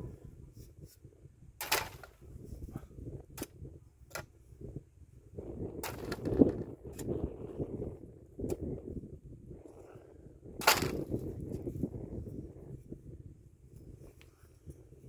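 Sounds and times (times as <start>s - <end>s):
spade digging into soil: 1.6s - 2.2s, 5.8s - 7.1s, 10.6s - 11.1s.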